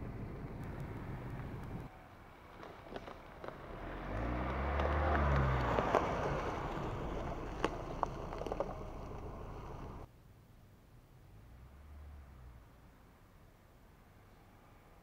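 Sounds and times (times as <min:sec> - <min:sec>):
pickup truck engine passing: 0:00.0 - 0:10.1
tyres crunching over leaves: 0:02.2 - 0:10.0.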